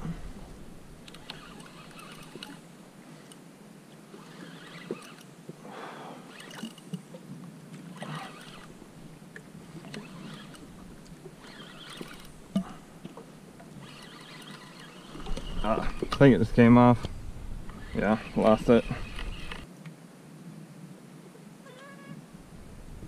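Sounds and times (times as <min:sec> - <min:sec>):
small waves lapping against kayak: 0:04.1 - 0:16.2.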